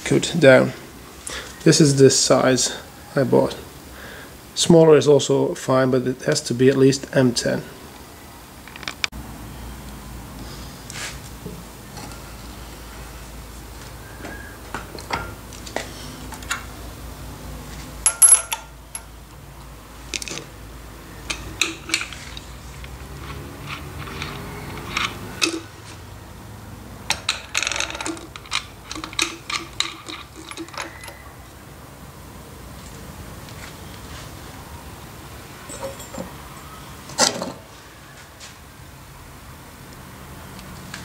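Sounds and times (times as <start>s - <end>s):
small metal parts clinking: 18.0s - 19.1s, 21.2s - 25.8s, 27.1s - 31.2s, 35.6s - 37.4s.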